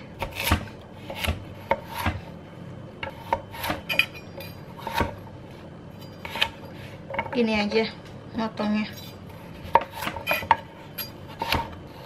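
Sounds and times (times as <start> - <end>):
knife chopping carrots on board: 0.2 - 2.3, 11.3 - 12.0.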